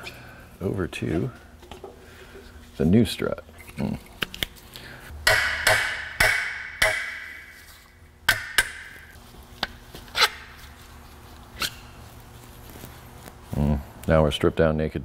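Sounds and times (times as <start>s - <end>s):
hammer striking steel: 5.2s - 7.6s, 8.3s - 9.1s.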